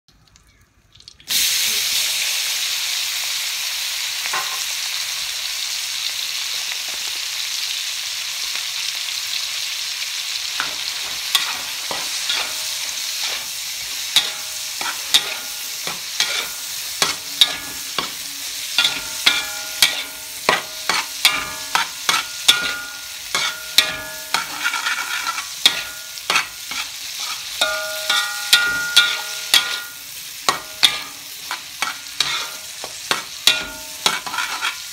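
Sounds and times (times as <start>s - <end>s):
food sizzling in hot oil: 1.1s - 34.9s
metal spatula scraping wok: 10.5s - 34.9s.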